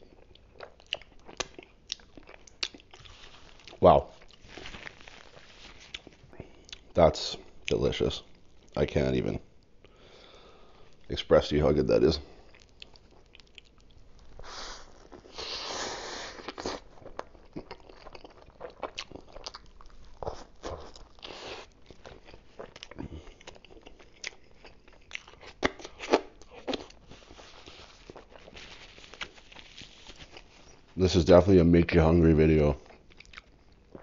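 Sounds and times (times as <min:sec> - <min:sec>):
chewing with wet mouth clicks: 0:00.0 - 0:04.4, 0:12.4 - 0:14.3, 0:16.4 - 0:27.0, 0:32.8 - 0:34.0
bread crust crunching: 0:00.1 - 0:07.0, 0:16.3 - 0:30.9.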